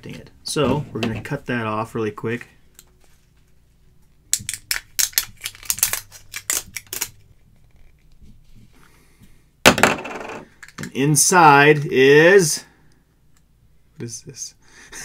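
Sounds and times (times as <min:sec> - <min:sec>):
plastic crackling: 0:04.2 - 0:08.2.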